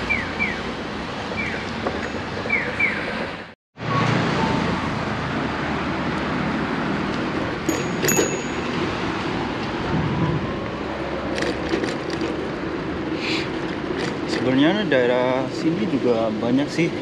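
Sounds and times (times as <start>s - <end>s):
passing road traffic: 0.0s - 17.0s
wind rumbling on microphone: 8.8s - 14.4s.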